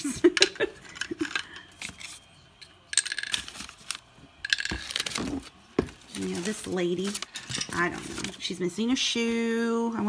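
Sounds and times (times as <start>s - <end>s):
toys rummaged in plastic bin: 2.9s - 8.5s.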